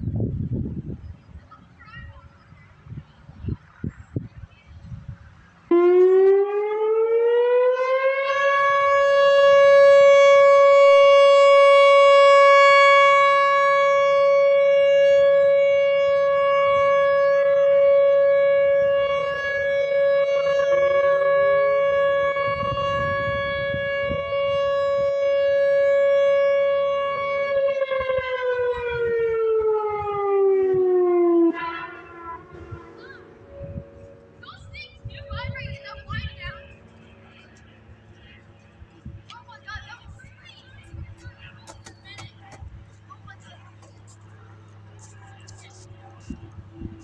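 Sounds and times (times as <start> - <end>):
warning siren alert tone: 5.7 - 37.1.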